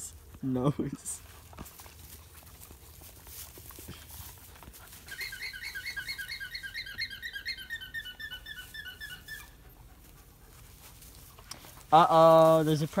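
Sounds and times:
squeaky animal alarm chirps: 5.1 - 9.6.

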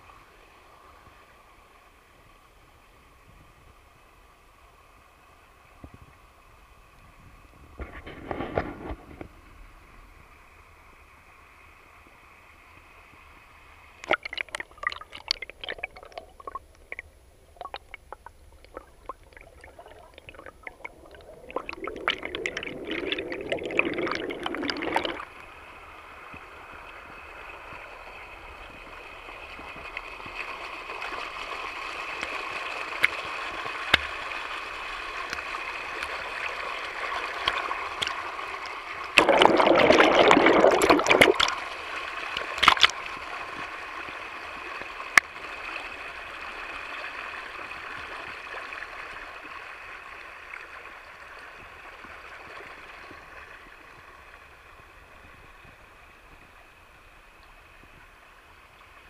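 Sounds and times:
stream water rushing over rocks: 14.0 - 50.4
water gushing: 14.0 - 56.0
underwater gurgle: 14.0 - 59.0.

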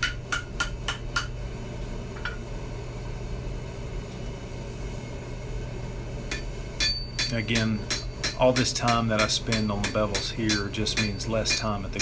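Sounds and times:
steady low hum: 0.0 - 12.0
hammer ringing on hot steel: 6.3 - 12.0.

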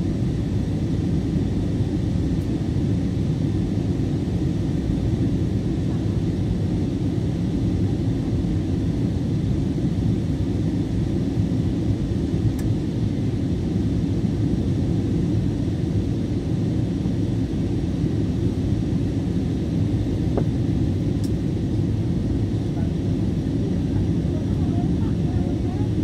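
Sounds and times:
airliner engines: 0.0 - 26.0.

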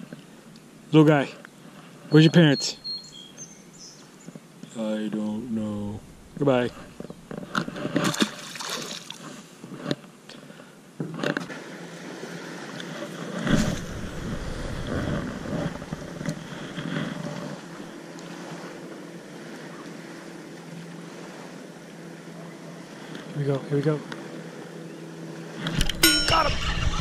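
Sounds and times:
steady low hum: 3.0 - 11.0, 11.6 - 27.0
fish splashing in water: 8.0 - 9.3
wind on microphone: 13.4 - 17.8.

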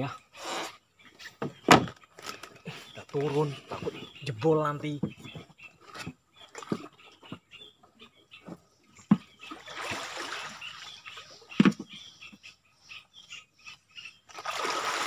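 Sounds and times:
water splashing around wading legs: 14.3 - 15.0.

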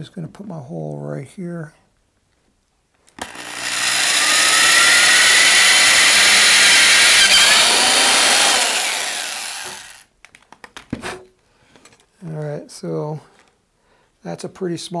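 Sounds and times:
electric drill whining: 3.2 - 10.0.

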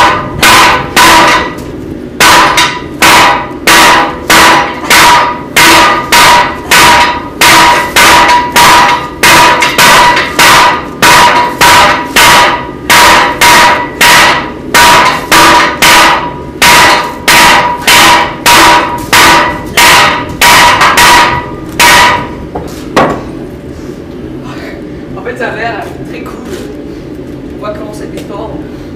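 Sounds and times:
hammers ringing on an anvil: 0.0 - 1.6, 2.2 - 22.3.

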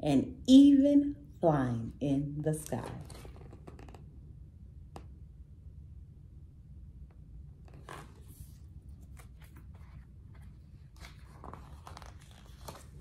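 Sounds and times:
low steady hum: 0.0 - 13.0
book pages rustling and turning: 2.7 - 4.0, 7.6 - 13.0.

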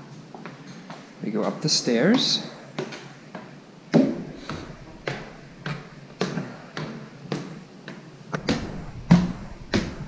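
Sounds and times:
footsteps on wooden stairs: 4.0 - 10.0.

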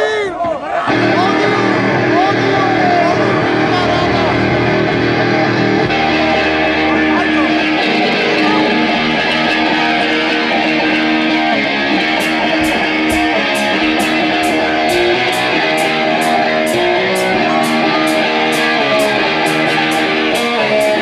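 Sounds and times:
electric guitar sustained notes: 0.9 - 21.0
drums: 12.0 - 21.0
cymbal strikes: 12.2 - 21.0.

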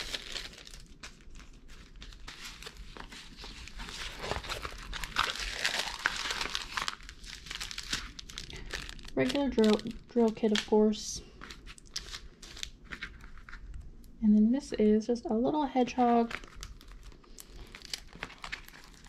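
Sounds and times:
plastic film crinkling: 0.0 - 13.8, 16.0 - 19.0.

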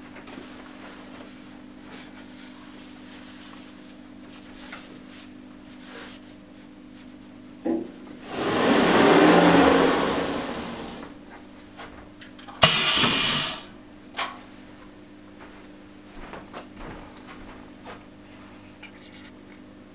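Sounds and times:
compressed air hiss: 12.6 - 13.7.

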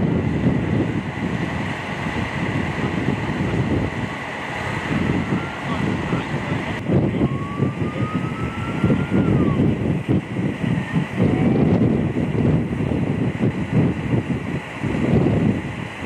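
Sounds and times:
fire engine on road: 0.0 - 16.0
wind rumbling on microphone: 0.0 - 16.0
faint high whine: 3.7 - 9.8
siren: 5.2 - 6.2, 7.1 - 9.6.

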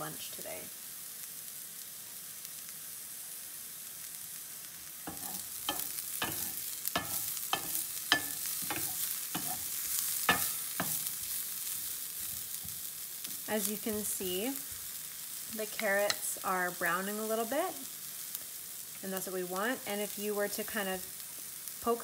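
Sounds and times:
vegetables sizzling in a pan: 0.0 - 22.0
wooden spoon scraping a pan: 5.1 - 15.0.

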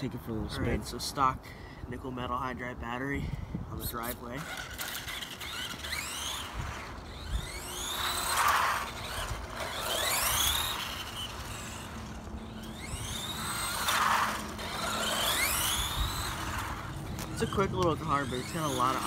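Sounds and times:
rc truck electric motor whine: 3.9 - 19.0.

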